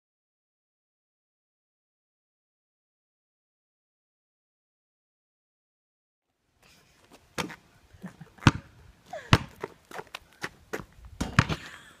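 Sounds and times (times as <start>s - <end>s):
basketball bouncing on asphalt: 7.4s - 7.6s, 8.4s - 11.7s.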